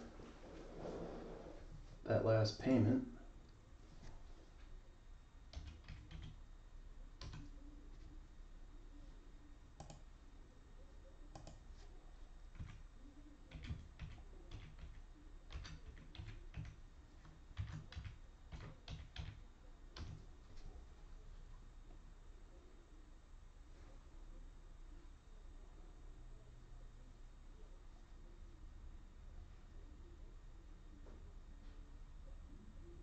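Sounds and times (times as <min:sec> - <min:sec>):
typing on computer keyboard: 0:05.5 - 0:06.4, 0:07.2 - 0:07.5, 0:09.8 - 0:10.0, 0:12.5 - 0:12.8, 0:13.5 - 0:19.4, 0:20.0 - 0:20.2.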